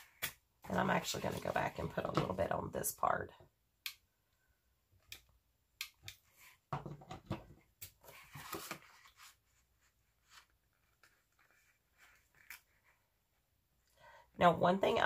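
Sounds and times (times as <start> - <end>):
poster board rustling and knocking: 6.7 - 7.6.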